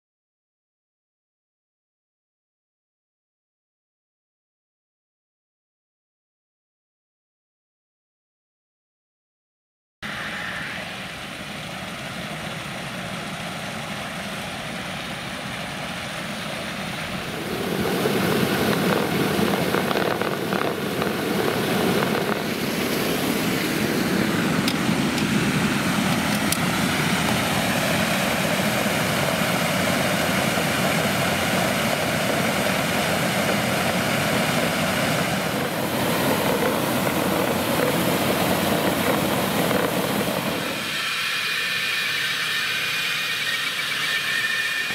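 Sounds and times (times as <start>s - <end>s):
water rushing from hydrant hose: 10.1s - 44.9s.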